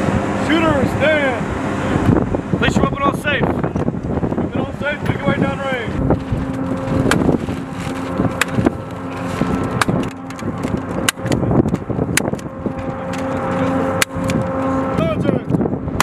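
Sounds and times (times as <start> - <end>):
steady hum: 0.0 - 16.0
wind noise: 0.0 - 16.0.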